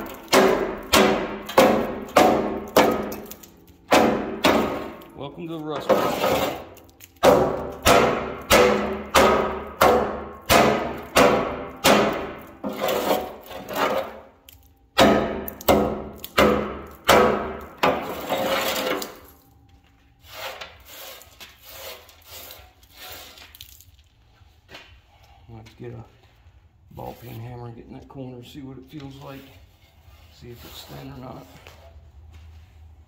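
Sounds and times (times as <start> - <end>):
hammer striking steel frame: 0.0 - 5.2, 7.2 - 14.2, 14.9 - 18.2.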